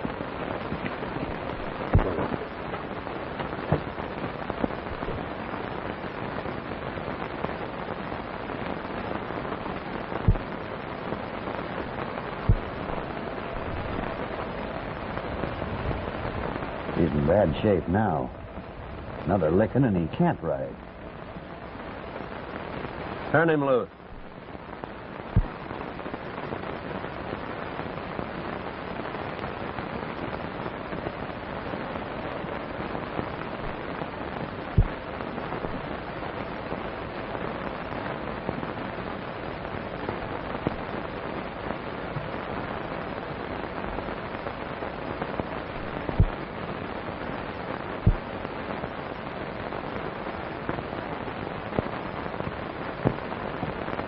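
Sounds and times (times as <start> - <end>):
sharp low pops: 0.0 - 5.7, 8.7 - 16.4, 23.3 - 26.6, 32.6 - 36.7, 40.0 - 41.1, 45.2 - 48.9, 51.7 - 54.0
film soundtrack hiss and crackle: 0.0 - 54.0.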